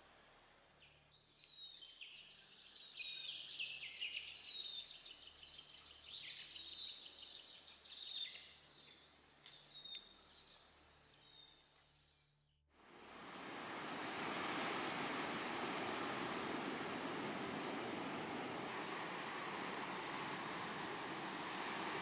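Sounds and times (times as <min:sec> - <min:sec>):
birds chirping trilling and whistling: 0:00.9 - 0:12.5.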